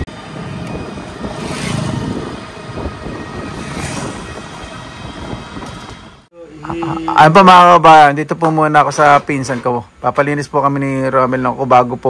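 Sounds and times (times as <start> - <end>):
rushing noise: 0.0 - 7.6
road and wind rumble: 0.0 - 12.0.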